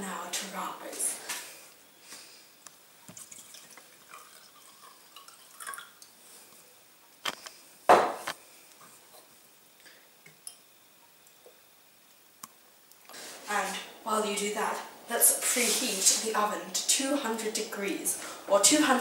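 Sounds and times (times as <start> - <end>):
liquid pouring into a glass: 3.1 - 6.2.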